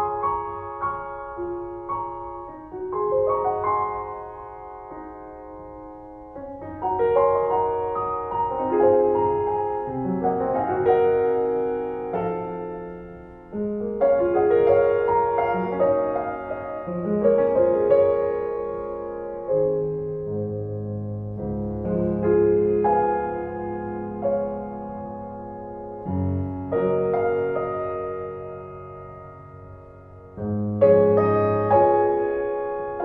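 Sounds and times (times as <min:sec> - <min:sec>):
slow gentle piano music: 0:00.0 - 0:33.0.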